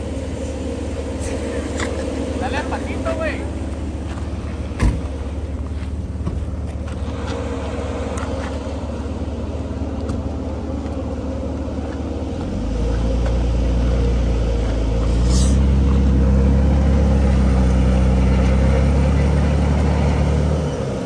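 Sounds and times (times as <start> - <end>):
truck engines idling: 0.0 - 21.0
engine revving under load: 6.2 - 21.0.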